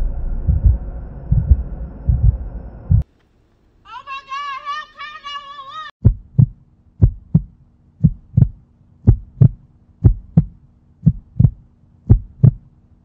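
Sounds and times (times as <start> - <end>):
heartbeat thumps: 0.0 - 3.0, 6.0 - 12.7.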